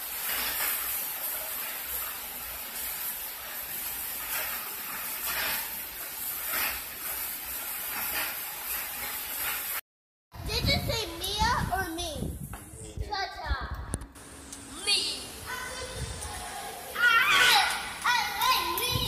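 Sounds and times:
wind gusts: 0:10.3 - 0:14.0, 0:14.8 - 0:16.9, 0:17.7 - 0:19.0.

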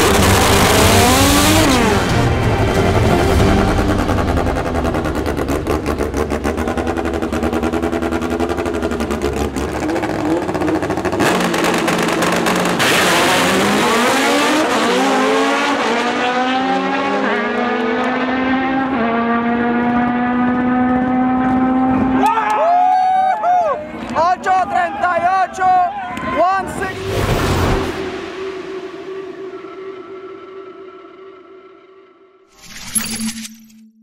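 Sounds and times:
race car engine revving: 0:00.0 - 0:22.2
engine rapid popping: 0:04.8 - 0:13.3.

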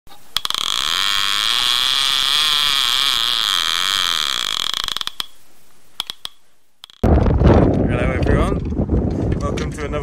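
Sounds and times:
fishing reel ratchet clicking: 0:00.4 - 0:05.4, 0:06.0 - 0:07.0.

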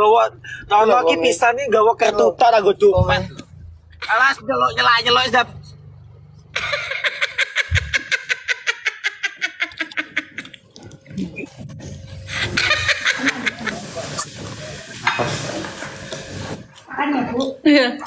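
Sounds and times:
person laughing heartily: 0:06.6 - 0:10.6, 0:12.3 - 0:14.2.

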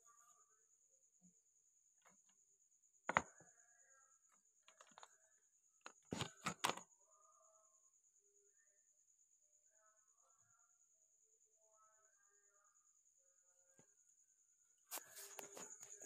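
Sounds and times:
faint steady high tone: 0:00.0 - 0:16.0.

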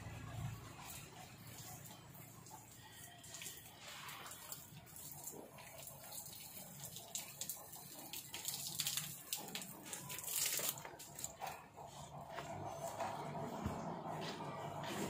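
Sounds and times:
garden hose spraying water: 0:00.6 - 0:11.4.

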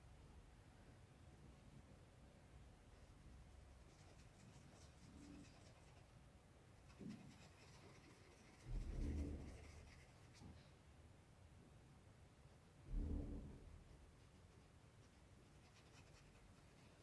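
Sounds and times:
paintbrush strokes on fabric: 0:03.0 - 0:06.2, 0:06.8 - 0:10.7, 0:13.9 - 0:17.0
dull low bump: 0:08.5 - 0:10.0, 0:12.8 - 0:14.2.

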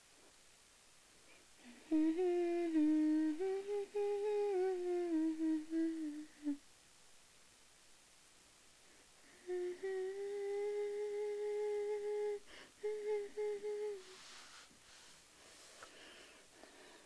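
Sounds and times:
girl humming a slow tune: 0:01.3 - 0:06.6, 0:09.2 - 0:15.0.

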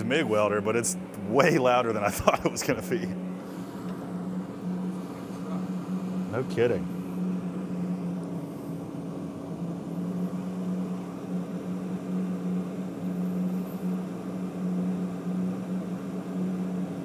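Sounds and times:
welder cooling fan humming: 0:00.0 - 0:17.0.

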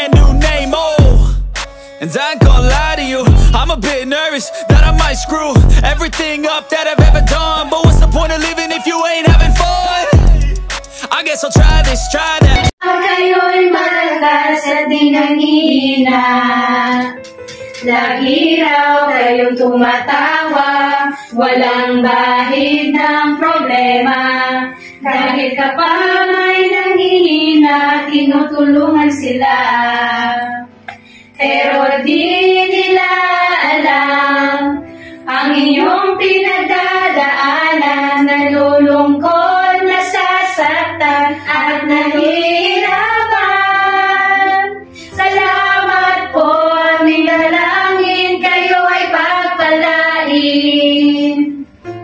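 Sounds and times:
women singing together: 0:12.8 - 0:17.2, 0:17.8 - 0:30.7, 0:31.3 - 0:51.6.

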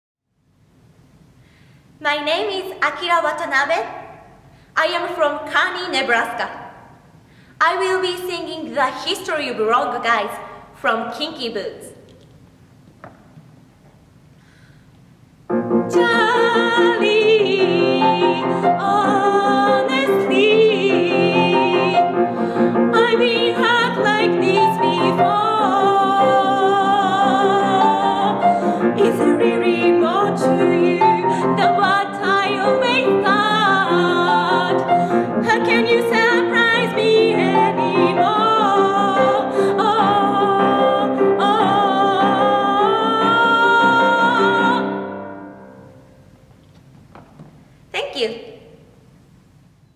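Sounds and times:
grand piano: 0:12.5 - 0:48.0
woman singing: 0:15.9 - 0:22.2, 0:22.9 - 0:45.3.

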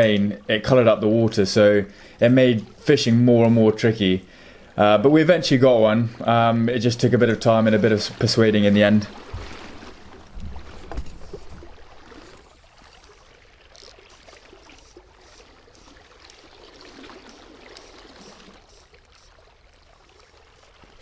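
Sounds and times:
soft handling knocks: 0:09.2 - 0:11.7.

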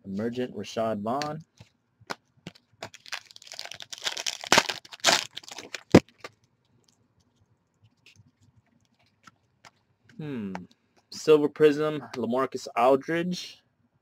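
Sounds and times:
trading cards rustling and clicking: 0:01.5 - 0:11.1.

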